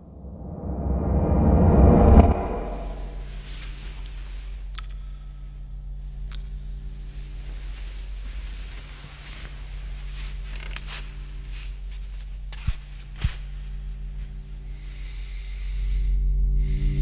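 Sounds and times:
low drone: 0:00.0 - 0:12.2, 0:13.6 - 0:17.0
steady low hum: 0:00.0 - 0:17.0
bedding rustling: 0:06.1 - 0:15.0
bare footsteps on carpet: 0:07.7 - 0:14.4.

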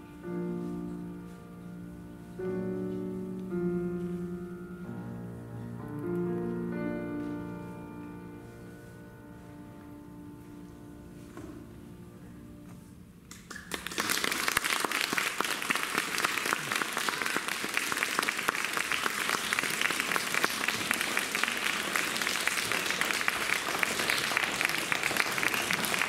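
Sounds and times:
grand piano notes: 0:00.0 - 0:13.2
audience applause: 0:13.3 - 0:26.0.

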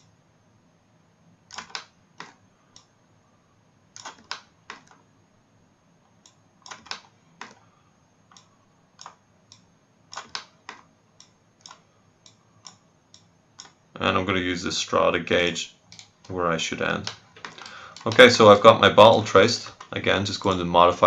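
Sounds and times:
computer mouse clicking: 0:01.5 - 0:02.9, 0:04.0 - 0:05.0, 0:06.2 - 0:07.6, 0:08.3 - 0:13.8, 0:15.9 - 0:16.4.

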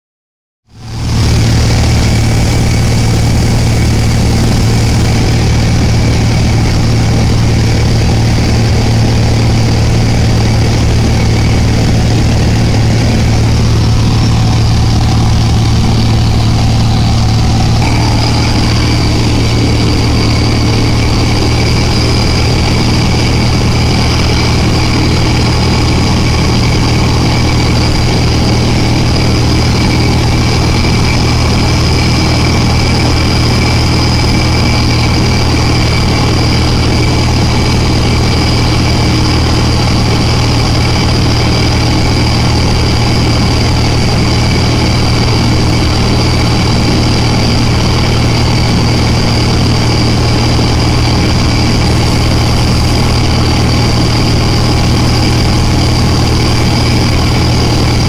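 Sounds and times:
light aircraft engine droning: 0:00.7 - 0:58.0.

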